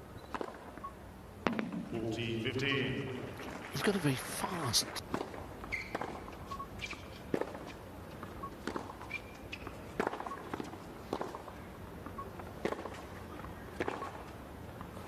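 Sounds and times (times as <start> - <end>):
tennis shoes squeaking: 0.0 - 0.9, 5.0 - 14.4
racket hitting tennis ball: 1.4 - 2.0, 10.0 - 11.5.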